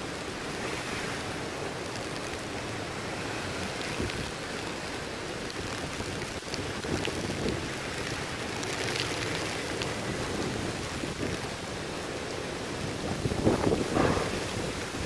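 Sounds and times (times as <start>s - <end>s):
heavy rain on wet pavement: 0.0s - 15.0s
strong wind gusting: 12.6s - 15.0s.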